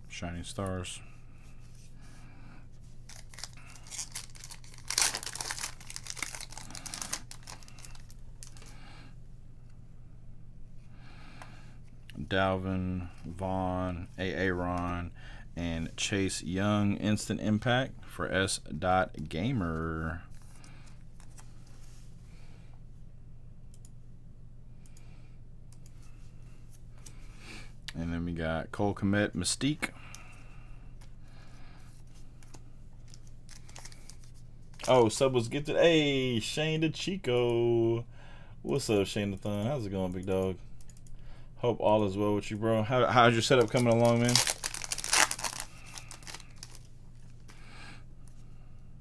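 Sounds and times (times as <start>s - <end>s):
steady low hum: 0.0s - 49.0s
plastic sleeve rustling: 2.8s - 8.7s, 32.1s - 35.2s, 43.1s - 47.6s
foil wrapper tearing and crinkling: 3.1s - 8.7s, 43.4s - 46.9s.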